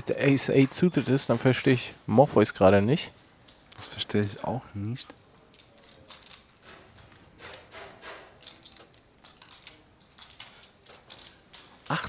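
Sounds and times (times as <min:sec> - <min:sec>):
poker chips clicking: 0:08.4 - 0:12.0.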